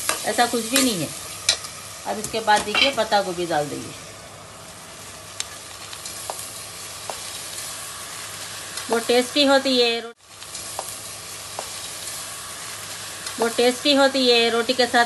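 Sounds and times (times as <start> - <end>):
food sizzling in oil: 0.0 - 15.0
woman speaking: 2.0 - 4.0, 8.9 - 10.2, 13.4 - 15.0.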